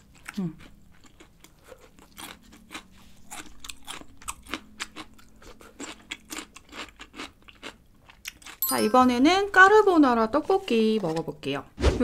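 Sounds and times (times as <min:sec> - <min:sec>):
crunching and chewing pickled radish: 0:00.0 - 0:08.6.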